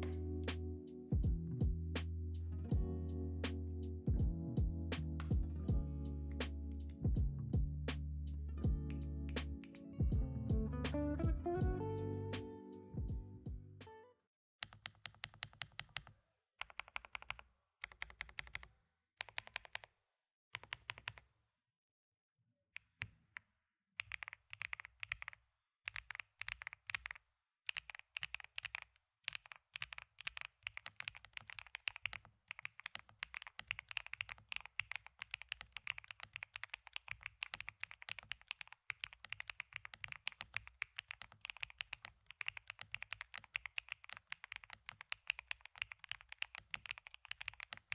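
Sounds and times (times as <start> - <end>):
mechanical keyboard typing: 14.6 - 19.9, 20.6 - 21.2, 24.0 - 47.9.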